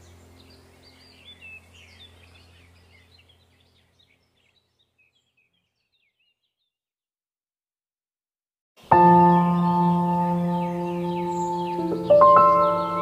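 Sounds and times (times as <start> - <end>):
low steady hum: 0.0 - 5.2
faint birds chirping: 0.0 - 6.9, 8.8 - 13.0.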